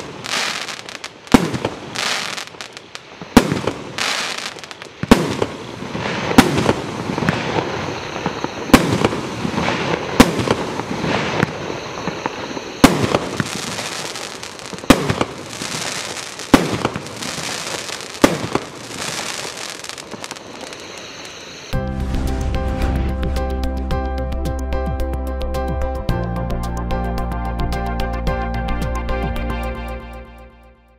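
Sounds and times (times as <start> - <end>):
firework bangs: 0.0 - 21.7
firework hiss and crackle: 0.0 - 22.5.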